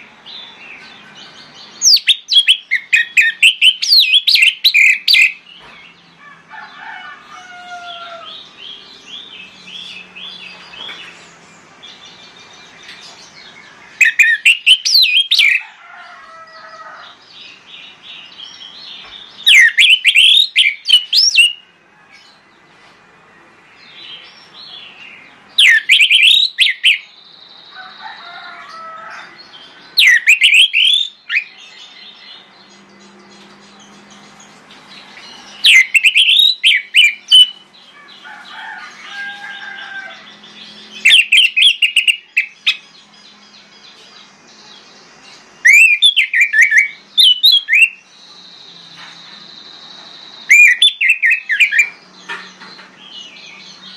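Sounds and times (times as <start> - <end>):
bird whistling loud phrases: 45.7 - 48.0, 50.5 - 51.9.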